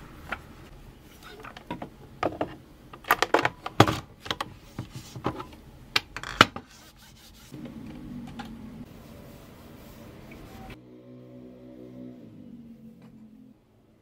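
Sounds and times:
cloth wiping countertop: 6.7s - 10.8s.

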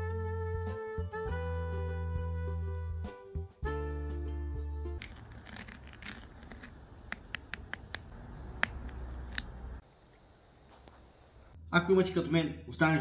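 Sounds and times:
spoon scraping ceramic ramekin: 5.0s - 8.0s
spoon cracking sugar crust: 5.0s - 9.5s.

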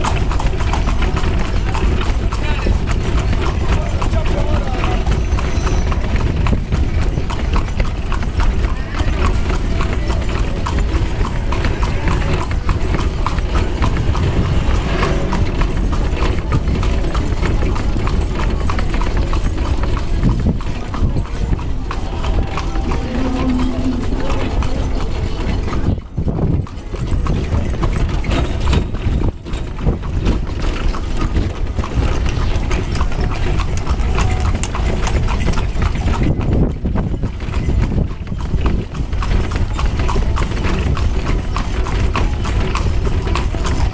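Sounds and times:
horse hooves clip-clopping on pavement: 0.0s - 43.9s
steady low rumble: 20.1s - 26.9s.

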